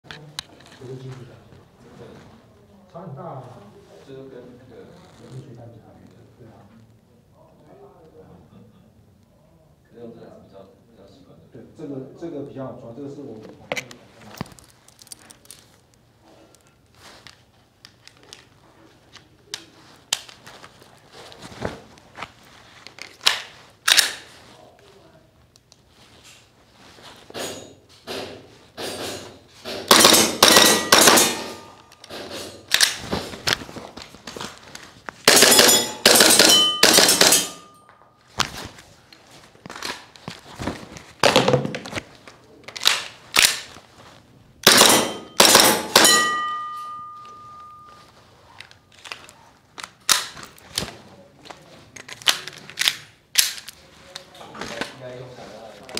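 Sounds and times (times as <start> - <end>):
airsoft pistol shots: 29.8 - 31.6, 44.6 - 46.5
faint ringing tone: 46.0 - 48.3.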